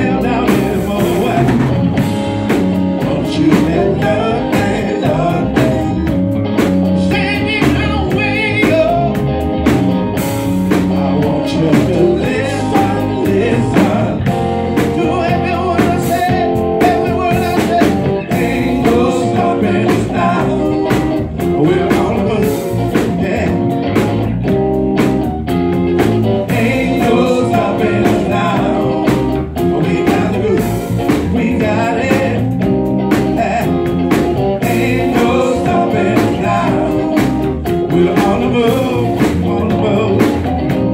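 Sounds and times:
person singing: 0.0 - 1.8, 3.0 - 6.1, 10.9 - 23.7, 26.4 - 32.6, 34.6 - 40.5
drum kit beat: 0.0 - 40.9
electric bass: 0.0 - 40.9
guitar: 0.0 - 40.9.

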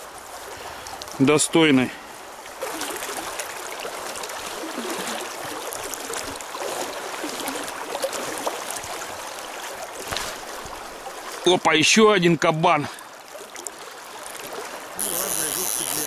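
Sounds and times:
river water rushing over stones: 0.0 - 12.3.

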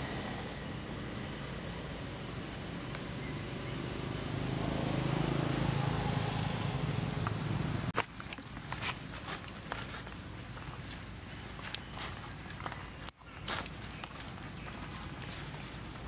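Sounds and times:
dry leaves crackling: 6.1 - 16.0.

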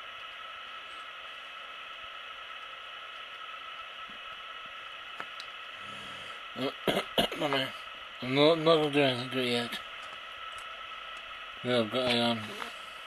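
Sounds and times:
background hiss: 0.0 - 13.0.

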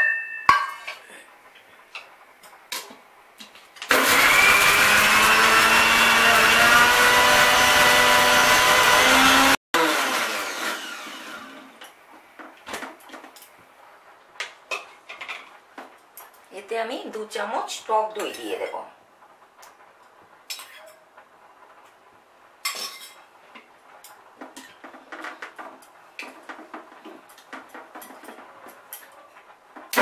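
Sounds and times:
mixer grinder running: 3.9 - 11.8.

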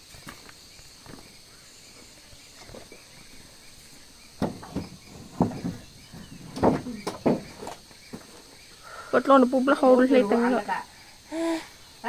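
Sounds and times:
high insect drone: 0.0 - 12.0
wooden planks knocking: 4.4 - 8.4.

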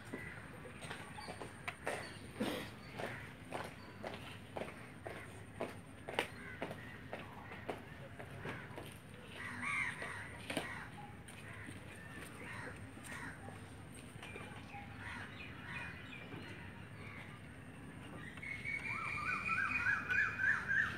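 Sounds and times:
crows cawing: 6.3 - 7.8, 8.4 - 13.5.

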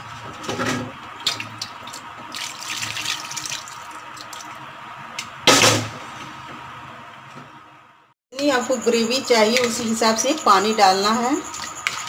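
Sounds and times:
water pouring and splashing: 1.2 - 4.7.

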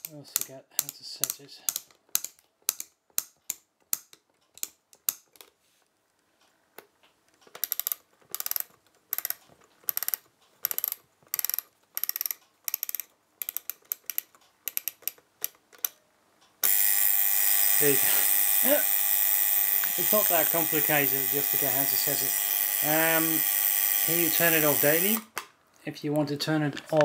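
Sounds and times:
ratcheting clicks of setting wheel: 7.4 - 16.0.

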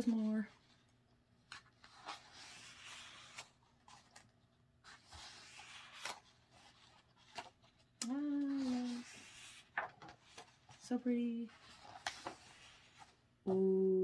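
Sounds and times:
book pages turning: 0.1 - 13.4
person humming: 13.5 - 14.0.

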